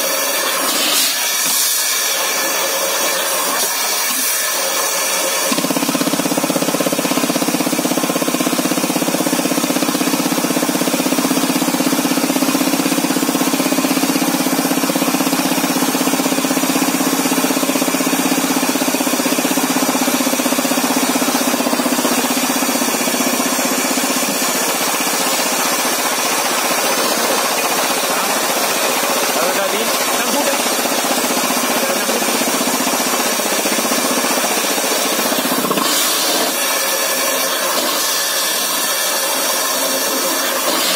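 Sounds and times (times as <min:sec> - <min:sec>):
rock drill hammering: 0:05.4 - 0:40.9.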